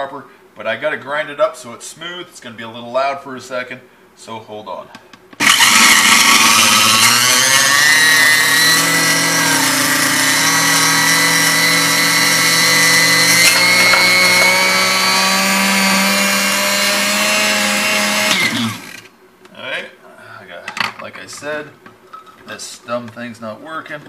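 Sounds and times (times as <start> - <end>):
blender motor whining: 5.4 - 19.1.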